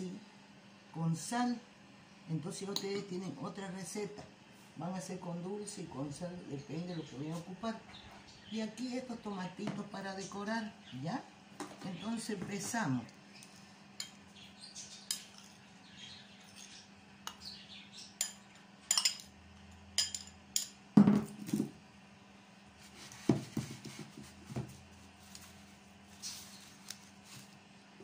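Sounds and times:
metal spoon clinking on ceramic bowl: 18.2 - 19.3, 20.0 - 20.8.

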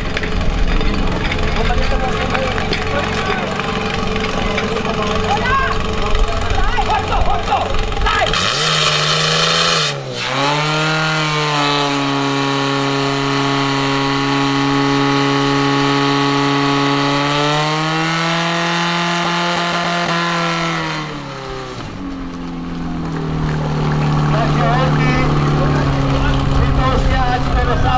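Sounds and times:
pump engine running hard: 0.0 - 27.9.

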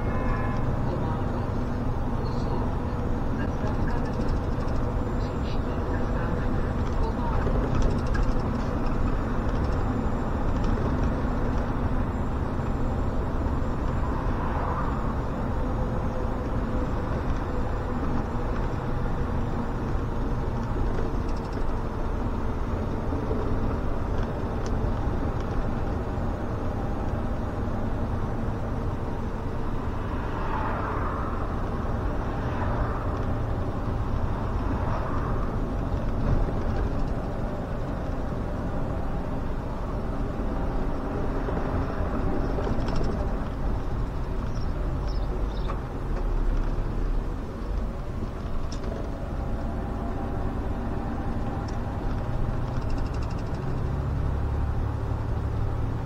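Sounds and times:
bus engine running: 0.0 - 56.0
road and tyre noise: 0.0 - 56.0.

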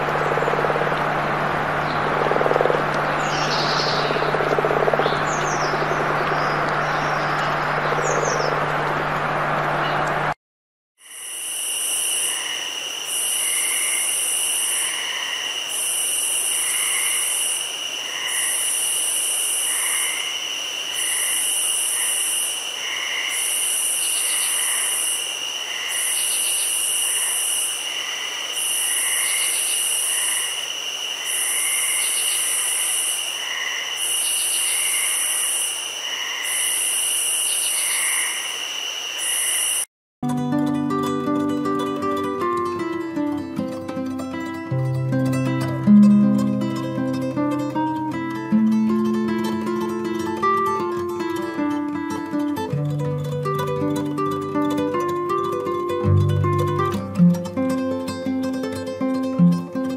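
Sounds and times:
insects trilling: 0.0 - 8.5, 11.0 - 39.9
high pulsing insect buzz: 11.0 - 39.9.

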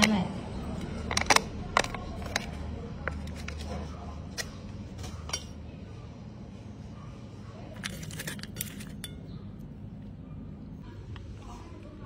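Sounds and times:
steel bowl clinking: 7.8 - 9.4.

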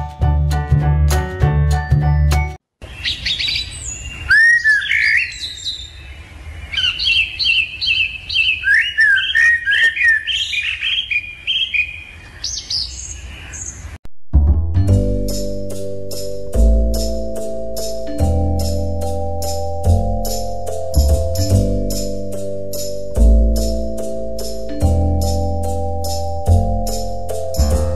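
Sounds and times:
lovebirds chirping: 2.8 - 14.0.

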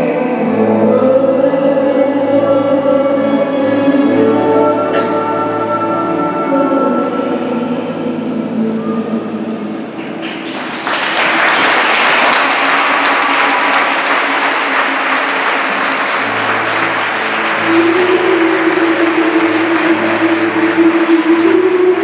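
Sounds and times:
audience applauding: 10.0 - 22.0.

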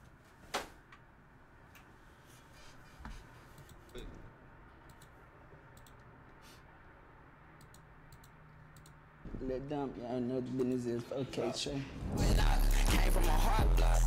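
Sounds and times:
faint computer clicks: 7.6 - 9.0.

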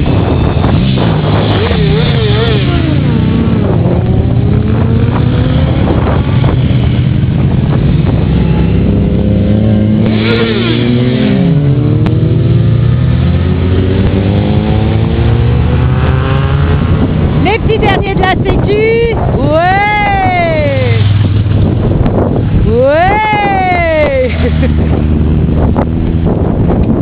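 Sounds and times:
motorcycles riding past: 0.0 - 17.8, 20.0 - 22.7, 23.4 - 26.9.

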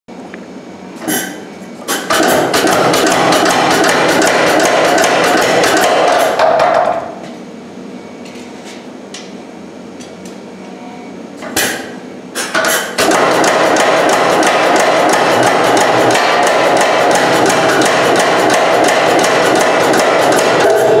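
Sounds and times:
power hammer forging hot steel: 1.9 - 6.4, 11.6 - 21.0.

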